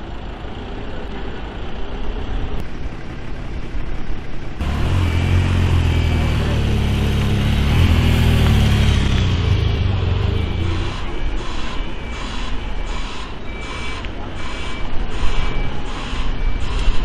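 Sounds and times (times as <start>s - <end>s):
truck engine rumble: 0.0s - 17.0s
motorcycle engine passing by: 4.6s - 11.1s
reversing alarm pulsing: 4.6s - 17.0s.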